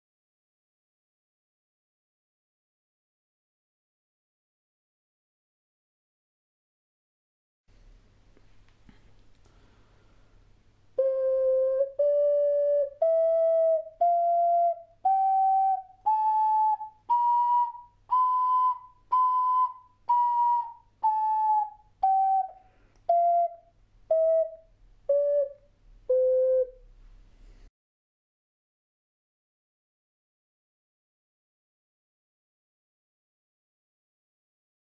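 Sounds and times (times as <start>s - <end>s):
ocarina playing a scale: 11.0s - 26.8s.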